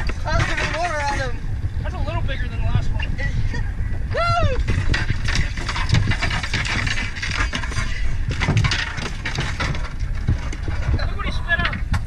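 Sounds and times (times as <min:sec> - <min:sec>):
fish thrashing on boat deck: 0:00.0 - 0:01.5, 0:04.3 - 0:12.0
low rumble: 0:00.0 - 0:12.0.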